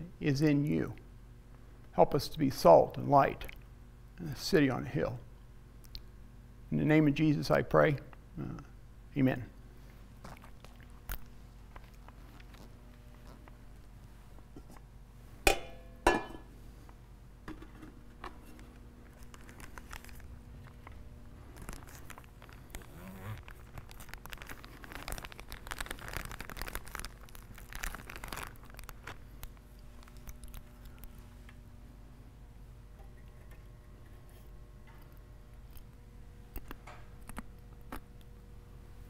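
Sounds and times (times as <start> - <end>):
bread crinkling and crunching: 18.7 - 31.2.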